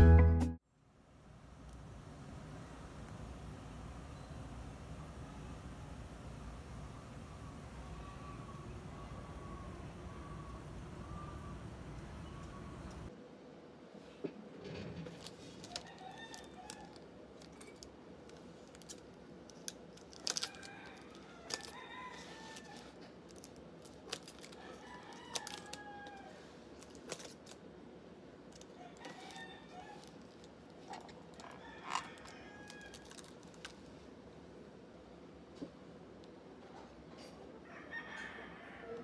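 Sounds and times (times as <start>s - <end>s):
scissors snipping plastic wrap: 15.1s - 27.6s
rooster crowing: 15.6s - 17.0s, 20.2s - 23.0s, 24.4s - 26.6s, 28.6s - 30.2s, 30.9s - 33.3s, 37.6s - 39.0s.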